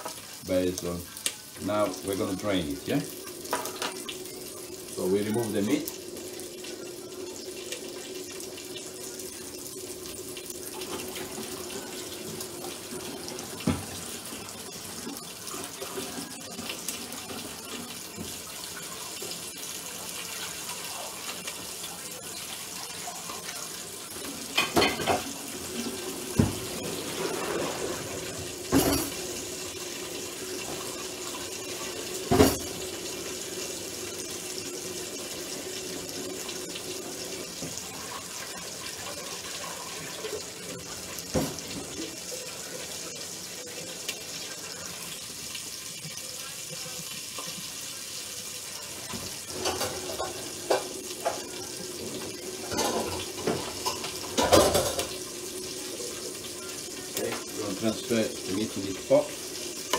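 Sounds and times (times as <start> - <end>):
kitchenware knocking and clinking: 3.5 - 4.0, 24.5 - 25.3, 26.4 - 26.7, 28.6 - 29.2, 32.2 - 32.8, 49.1 - 51.5, 52.6 - 55.2
tap running into sink: 13.6 - 14.0, 26.3 - 26.8, 32.2 - 32.8, 41.3 - 42.0.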